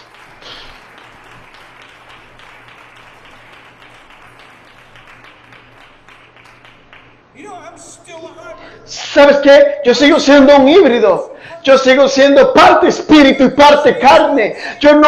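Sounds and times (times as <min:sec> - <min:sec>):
congregation applauding: 0:00.0 - 0:08.4.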